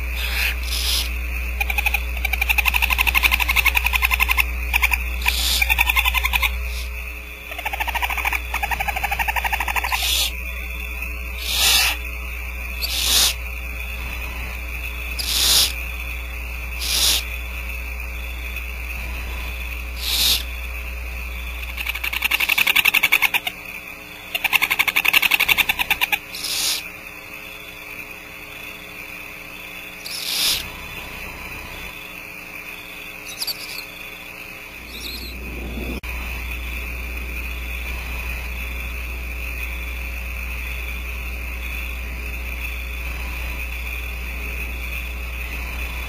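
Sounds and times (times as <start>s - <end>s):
barn owls rasping hisses: 0.0s - 1.2s, 6.7s - 7.0s, 11.4s - 12.0s, 12.8s - 13.4s, 15.2s - 15.8s, 16.8s - 17.3s, 20.0s - 20.5s, 26.3s - 26.9s, 30.0s - 30.7s
low hum: 0.0s - 22.8s, 30.0s - 46.0s
steady high whine: 0.0s - 46.0s.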